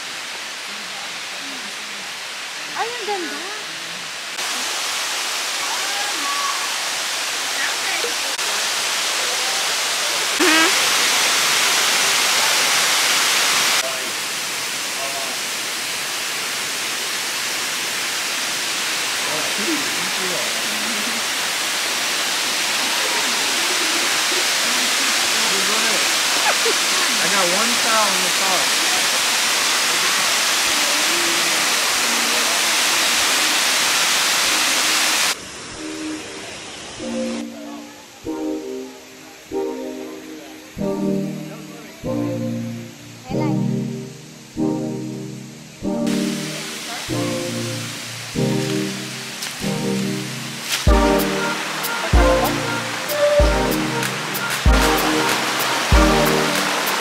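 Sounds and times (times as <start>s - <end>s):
waterfall rushing: 0.0s - 42.0s, 43.6s - 57.0s
background music: 37.0s - 57.0s.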